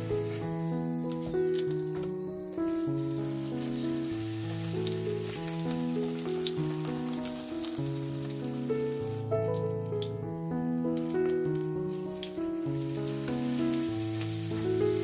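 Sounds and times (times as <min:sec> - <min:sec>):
background music: 0:00.0 - 0:15.0
oil sizzling with crackles: 0:00.0 - 0:15.0.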